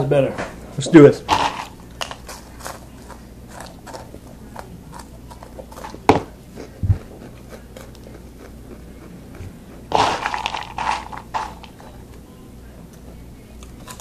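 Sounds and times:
person chewing crunchy snacks: 0:01.3 - 0:11.8.

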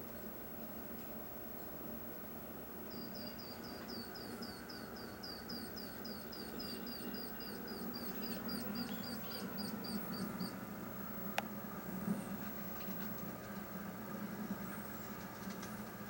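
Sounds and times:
low steady hum: 0:00.0 - 0:16.0
high chirping animal calls: 0:02.9 - 0:10.6.

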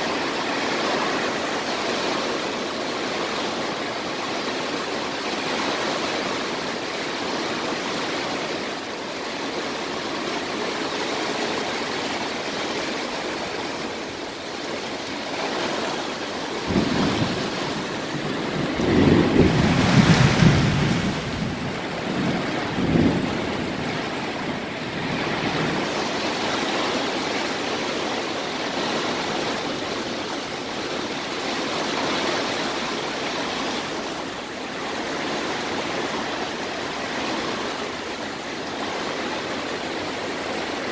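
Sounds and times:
heavy rain hiss: 0:00.0 - 0:40.9
low thunder rumbling: 0:16.4 - 0:26.4.

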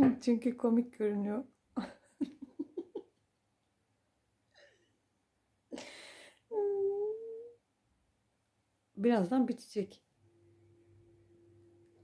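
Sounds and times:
person giggling: 0:01.8 - 0:03.2
person humming: 0:06.5 - 0:07.6.

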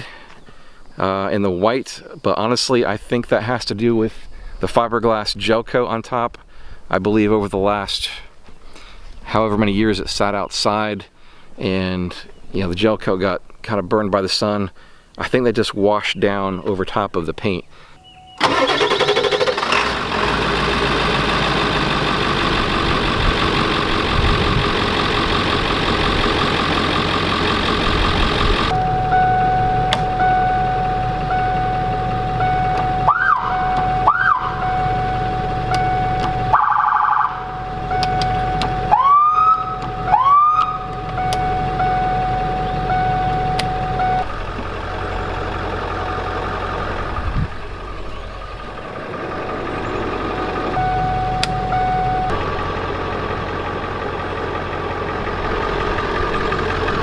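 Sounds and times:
engine running: 0:18.4 - 0:57.0
electronic siren whoops: 0:28.7 - 0:44.2
light ticking: 0:37.9 - 0:38.8, 0:40.6 - 0:42.0, 0:50.6 - 0:52.4.

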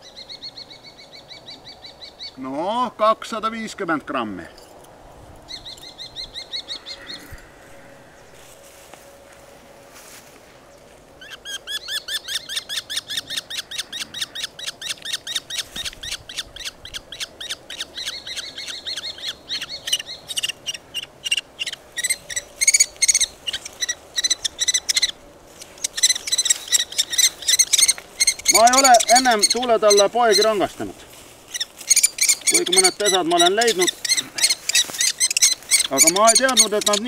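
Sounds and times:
kestrel shrill calls: 0:05.5 - 0:07.5, 0:11.2 - 0:30.9, 0:31.5 - 0:37.0.

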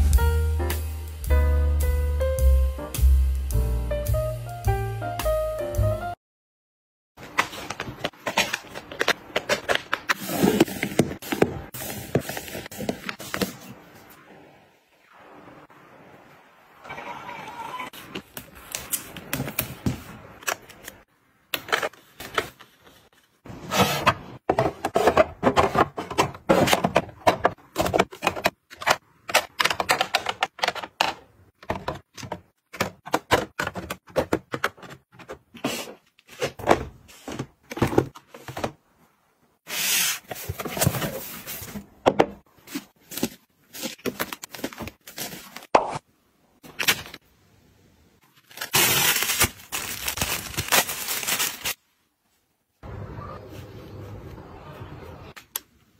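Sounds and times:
plastic boxes clicking and knocking: 0:24.0 - 0:35.6
plastic packaging rustling: 0:42.6 - 0:45.7, 0:48.2 - 0:51.8.

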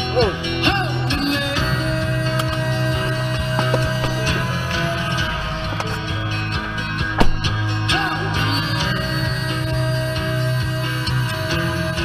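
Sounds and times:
guitar music: 0:00.0 - 0:12.0
sharp knock: 0:07.2 - 0:07.6.

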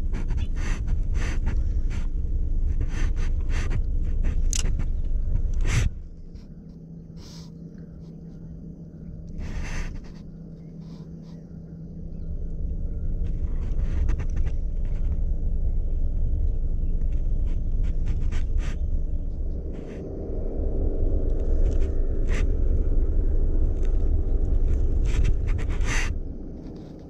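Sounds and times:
microphone handling noise: 0:00.0 - 0:06.5
wind rumble on microphone: 0:00.0 - 0:27.0.

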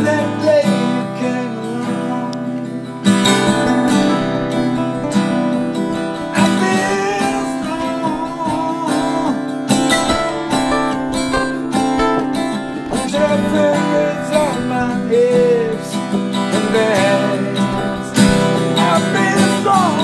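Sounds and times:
man singing: 0:00.0 - 0:03.7, 0:06.2 - 0:11.0, 0:12.7 - 0:20.0
acoustic guitar strumming: 0:00.0 - 0:20.0.

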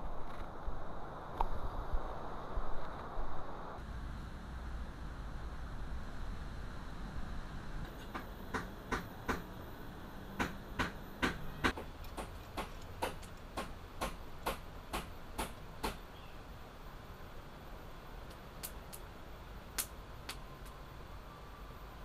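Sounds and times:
steady low hiss: 0:00.0 - 0:22.0
sharp short knocks: 0:10.4 - 0:16.0.

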